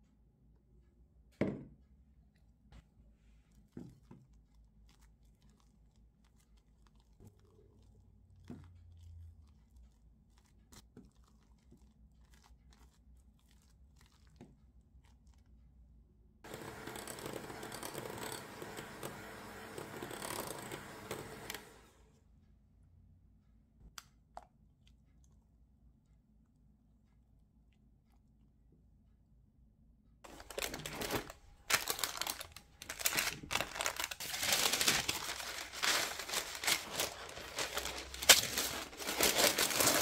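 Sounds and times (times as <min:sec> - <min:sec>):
electric hand mixer beating: 0:16.5 - 0:21.9.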